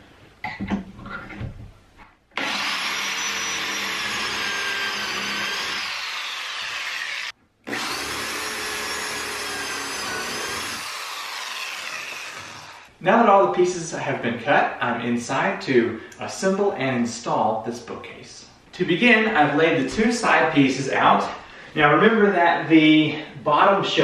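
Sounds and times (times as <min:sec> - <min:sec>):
electric drill boring wood: 0:02.4 - 0:12.9.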